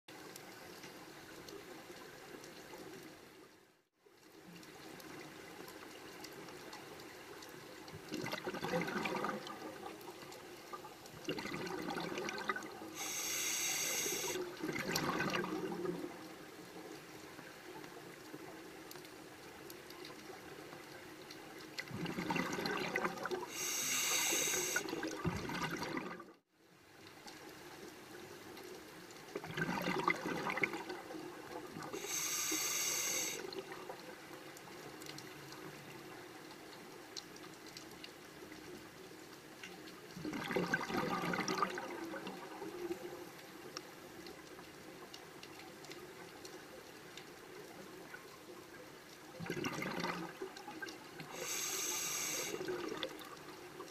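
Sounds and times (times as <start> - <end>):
exhaled bubbles: 8.0 - 10.0, 11.2 - 16.2, 21.8 - 26.4, 29.4 - 33.9, 40.2 - 42.8, 49.4 - 53.5
regulator breathing underwater: 12.9 - 14.4, 23.4 - 25.0, 31.9 - 33.5, 51.3 - 52.9
steady background hiss: 12.9 - 14.5, 23.5 - 25.0, 31.9 - 33.5, 51.3 - 52.8.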